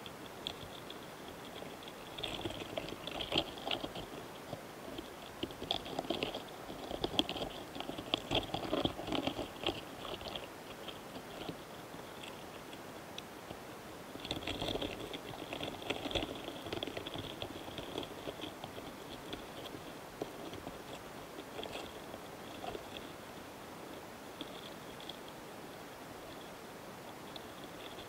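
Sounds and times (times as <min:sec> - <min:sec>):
beetles ticking and scratching: 0:00.0 - 0:28.0.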